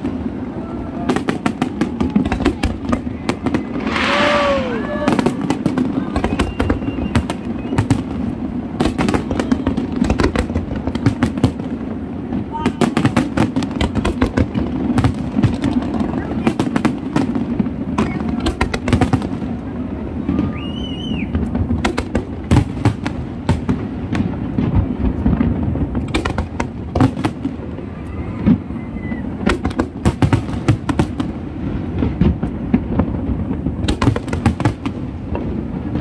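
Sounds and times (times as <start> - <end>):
high firework whistle: 0.0 - 8.2, 8.9 - 9.9, 20.2 - 21.5, 27.8 - 29.4
fireworks bangs and crackles: 0.0 - 36.0.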